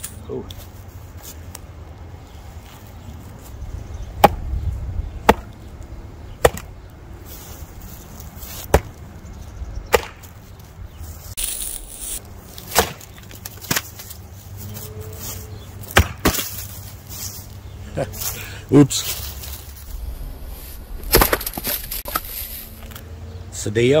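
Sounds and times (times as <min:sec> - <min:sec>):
axe chopping log: 0:04.2 - 0:04.4, 0:05.2 - 0:05.6, 0:06.4 - 0:06.7, 0:08.7 - 0:09.0, 0:09.9 - 0:10.3, 0:12.7 - 0:14.0, 0:15.9 - 0:16.6, 0:21.0 - 0:22.3.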